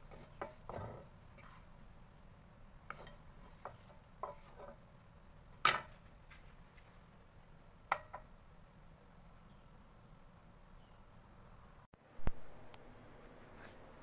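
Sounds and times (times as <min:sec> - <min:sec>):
wooden spatula scraping a wok: 0:00.0 - 0:02.0, 0:02.8 - 0:04.9.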